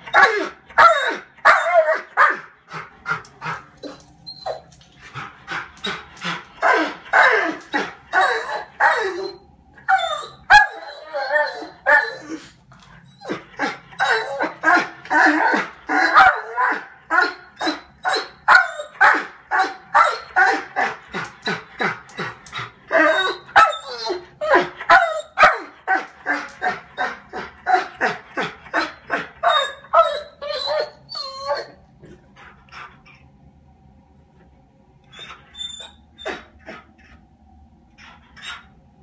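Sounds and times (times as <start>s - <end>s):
dog barking and yipping: 0.1s - 2.5s, 6.6s - 12.4s, 13.2s - 20.9s, 22.9s - 28.1s, 28.7s - 31.7s.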